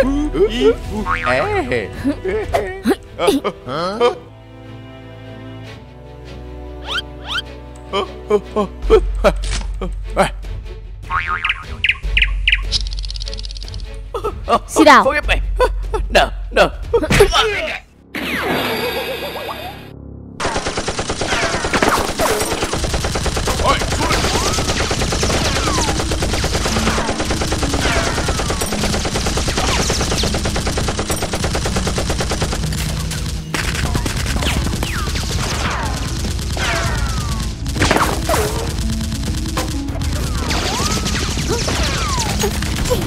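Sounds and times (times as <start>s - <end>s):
automatic gunfire bursts: 20.4s - 43.0s.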